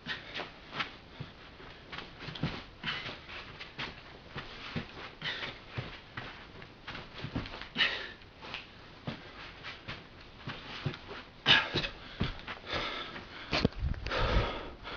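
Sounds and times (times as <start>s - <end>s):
swishes and scuffs on carpet: 0.1s - 7.7s, 8.3s - 13.3s
person breathing hard: 2.7s - 3.6s, 4.4s - 6.0s, 7.7s - 8.2s, 11.5s - 14.9s.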